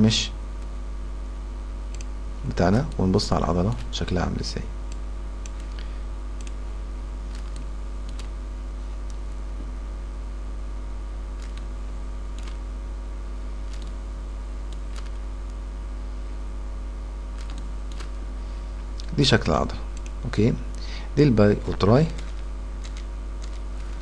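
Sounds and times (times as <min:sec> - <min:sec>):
electrical hum and buzz: 0:00.0 - 0:24.0
faint computer clicks: 0:01.9 - 0:02.1, 0:04.9 - 0:06.6, 0:07.3 - 0:08.4, 0:13.7 - 0:14.0, 0:14.7 - 0:15.6.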